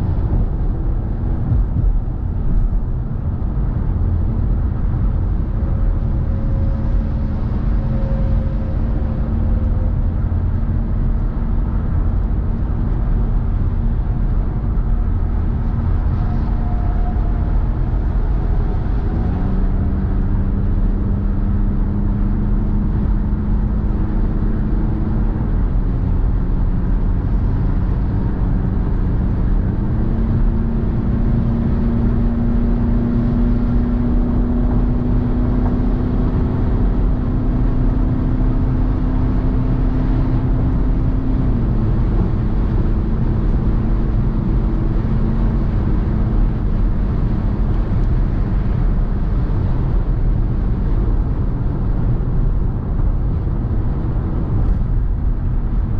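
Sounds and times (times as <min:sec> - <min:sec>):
car engine hum: 0:00.0 - 0:55.9
road and tyre noise: 0:00.0 - 0:55.9.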